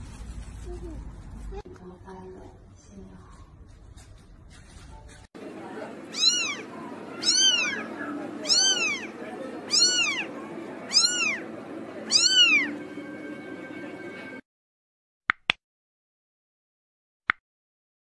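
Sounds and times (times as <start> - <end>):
kitten mewing: 6.1 - 10.3, 10.9 - 11.4, 12.1 - 12.7.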